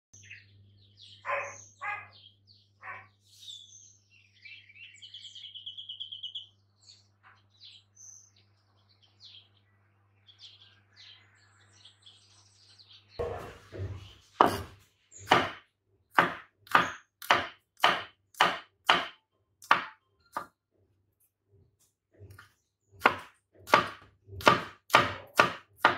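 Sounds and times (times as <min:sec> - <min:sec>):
birds chirping: 0:00.1 - 0:20.5
cleaver chopping on wooden board: 0:14.4 - 0:15.6, 0:16.2 - 0:20.5, 0:23.0 - 0:25.9.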